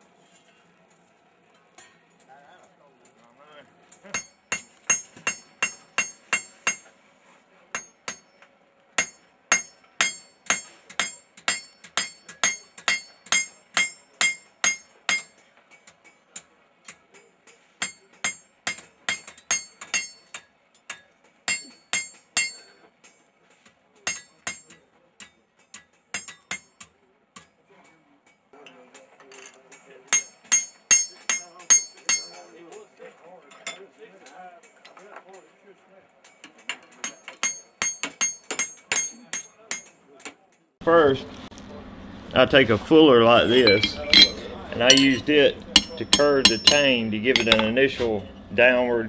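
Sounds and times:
hammer striking steel on anvil: 0:04.0 - 0:07.0, 0:07.7 - 0:23.3, 0:24.0 - 0:27.6, 0:29.4 - 0:32.9, 0:36.3 - 0:40.4, 0:43.4 - 0:48.4.

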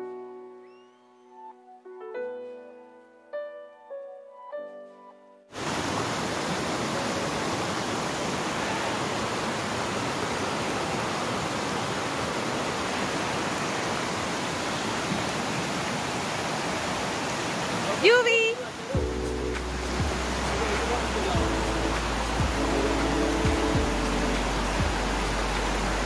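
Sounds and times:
background music: 0:00.0 - 0:05.5, 0:19.0 - 0:26.0
water rushing over rocks: 0:05.6 - 0:26.0.

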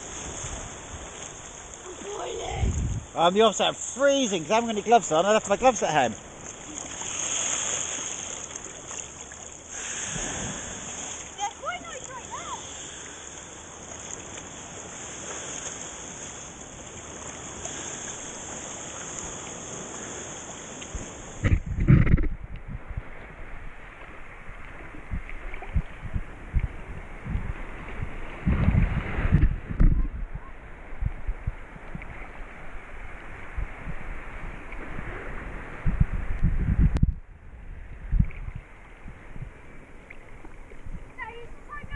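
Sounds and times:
wind buffeting microphone: 0:00.0 - 0:03.2, 0:20.9 - 0:41.9
steady high hiss: 0:03.0 - 0:06.1
seawater sloshing and lapping: 0:03.7 - 0:22.2.

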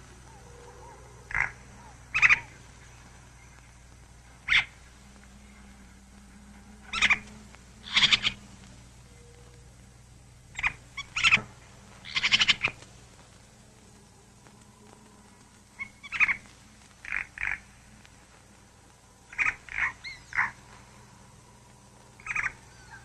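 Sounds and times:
steady low hum: 0:00.0 - 0:23.0
short sharp animal calls: 0:06.9 - 0:08.4.

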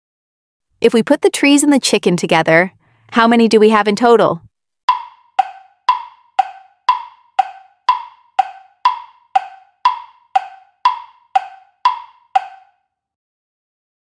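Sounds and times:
wood-block timer ticking: 0:04.9 - 0:12.8.

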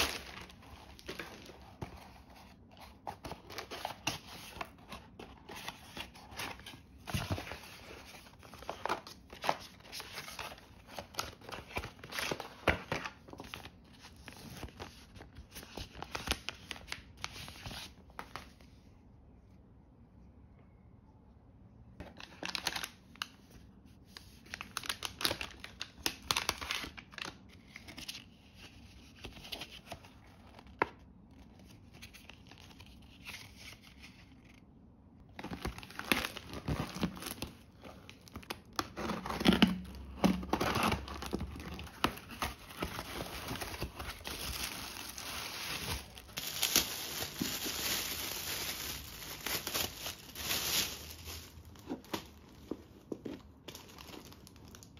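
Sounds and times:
plastic bag crinkling: 0:00.0 - 0:01.6, 0:40.8 - 0:52.5, 0:53.3 - 0:54.9
packaging rustling and tapping: 0:38.3 - 0:54.8.

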